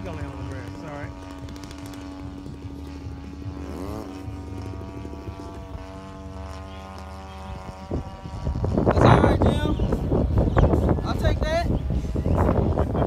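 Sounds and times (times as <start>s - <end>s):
model airplane engine running: 0.0s - 13.0s.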